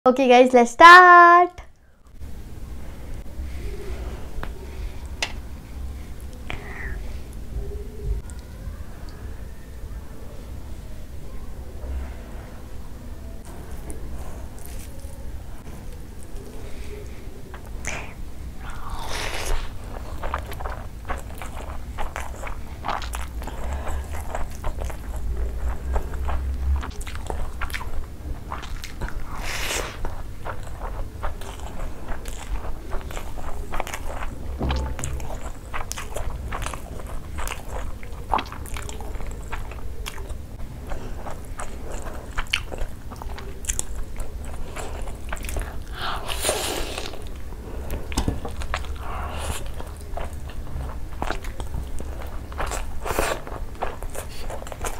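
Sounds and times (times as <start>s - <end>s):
low steady hum: 0.1s - 54.9s
mouth chewing clicks and smacks: 19.5s - 46.0s.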